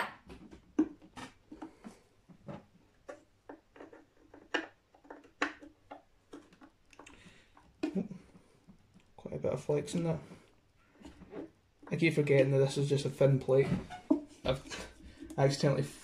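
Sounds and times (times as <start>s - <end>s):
small clicks and taps: 2.5s - 8.0s.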